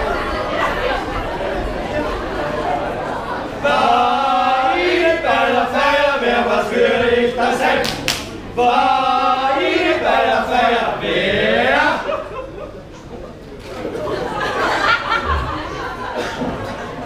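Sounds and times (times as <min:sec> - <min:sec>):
group of voices chanting in unison: 0:00.0 - 0:12.2.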